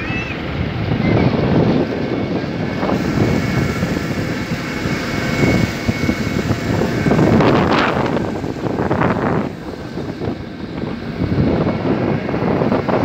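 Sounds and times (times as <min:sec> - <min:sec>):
motorboat engine running: 0:00.0 - 0:13.0
wind rumbling on microphone: 0:00.0 - 0:13.0.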